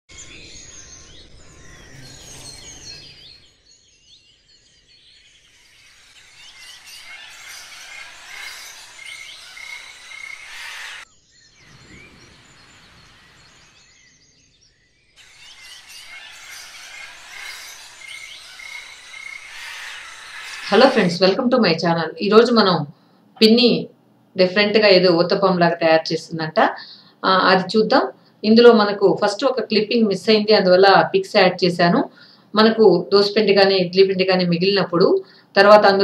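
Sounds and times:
birds chirping and calling: 0.1s - 21.6s.

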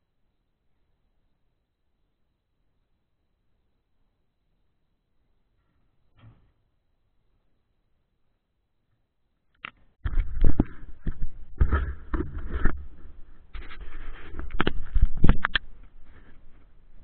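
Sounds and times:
camera handling scraping and rustling: 10.1s - 16.6s.

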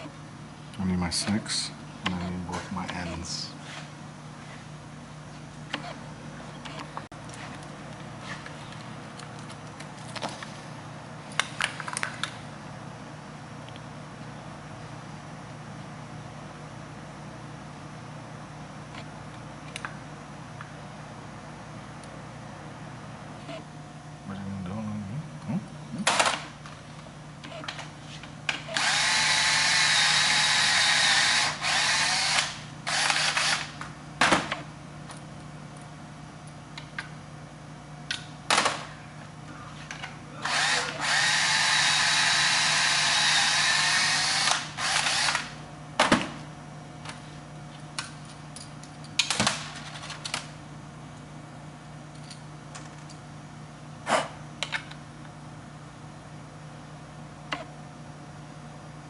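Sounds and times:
cordless drill motor whine: 28.7s - 33.7s, 40.4s - 45.6s.

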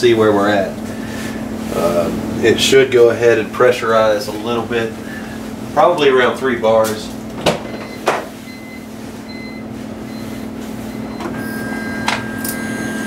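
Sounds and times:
thin high whine: 10.2s - 13.0s
electric fuel pump humming: 10.3s - 13.0s.

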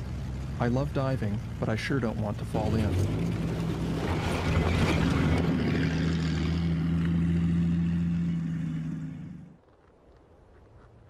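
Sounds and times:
snow vehicle engine running: 0.0s - 9.6s
tracks crunching over snow and ice: 9.6s - 11.0s.

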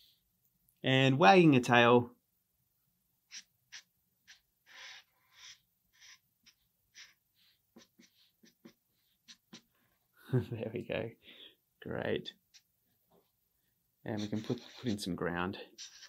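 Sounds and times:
marker scratching on paper: 3.3s - 9.7s, 14.1s - 16.0s.

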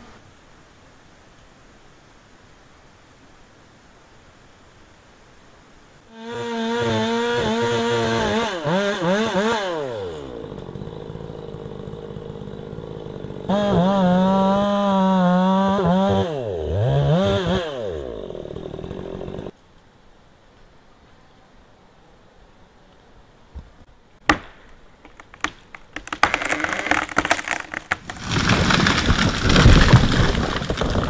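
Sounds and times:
chainsaw revving: 6.1s - 19.5s, 26.0s - 30.6s.

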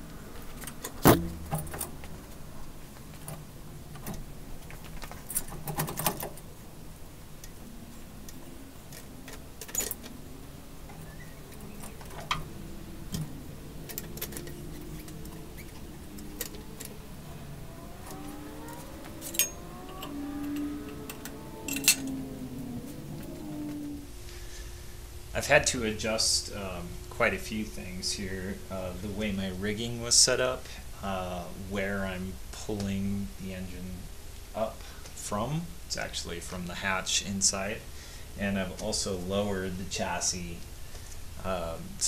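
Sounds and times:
low background hum: 0.0s - 42.0s
metal chains clinking and rattling: 21.7s - 22.2s.

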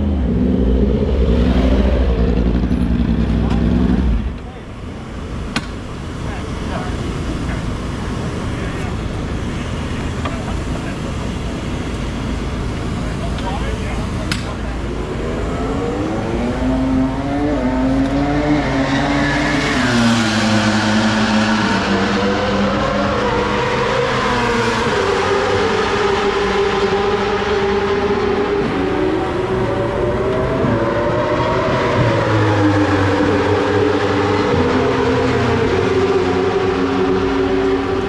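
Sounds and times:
motorcycle engine revving: 0.0s - 4.4s.

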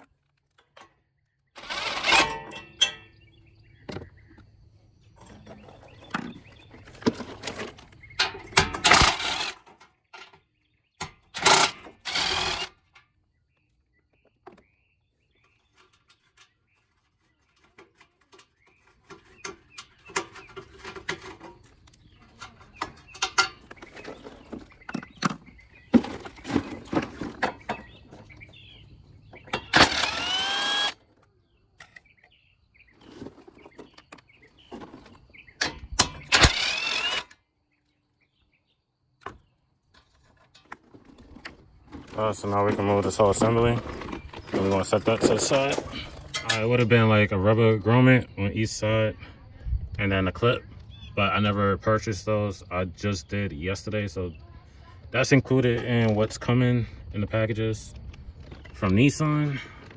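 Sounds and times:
impact driver bursts: 1.6s - 2.4s, 8.8s - 9.6s, 11.4s - 12.8s, 29.6s - 31.0s, 36.2s - 37.4s
metal tools clicking and knocking: 17.6s - 24.1s, 45.4s - 46.7s.

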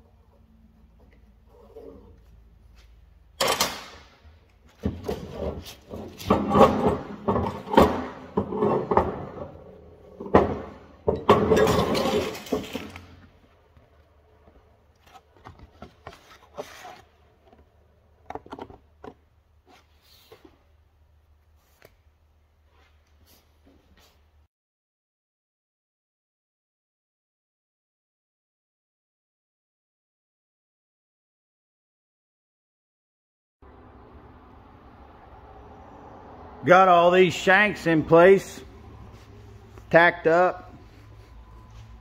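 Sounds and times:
metal clunking and scraping: 4.7s - 13.3s.

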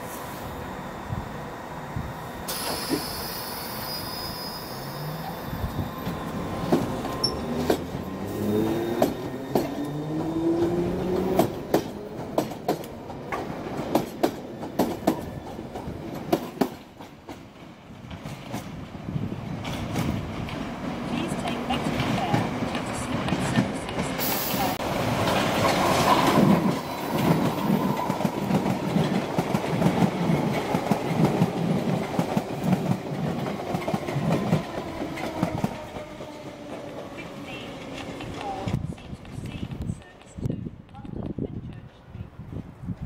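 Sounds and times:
high wheel squeal: 2.5s - 5.6s.

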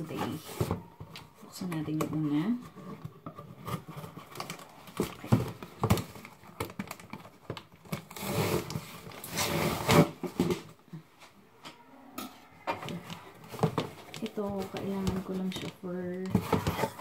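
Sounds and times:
packing tape ripping: 5.8s - 10.2s.

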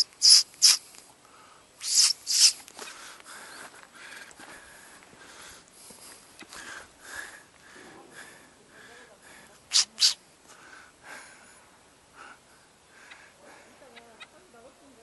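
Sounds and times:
sharp nasal sniffs: 0.0s - 0.9s, 1.8s - 2.6s, 9.7s - 10.2s
faint chirps: 0.0s - 2.7s.

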